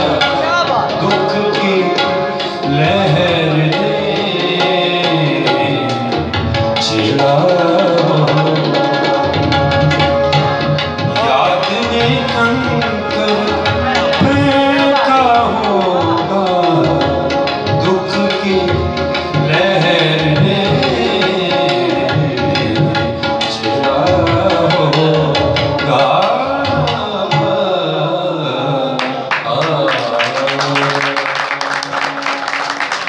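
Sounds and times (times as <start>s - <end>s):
harmonium: 0.0s - 29.6s
man singing: 0.0s - 33.0s
tabla: 0.0s - 33.0s
hand clapping: 29.0s - 33.0s.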